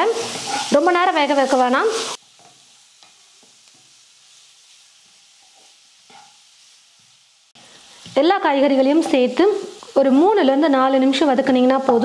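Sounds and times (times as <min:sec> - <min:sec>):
vegetables sizzling in a pan: 0:00.0 - 0:12.0
wooden spatula scraping: 0:00.1 - 0:03.9, 0:05.0 - 0:06.4.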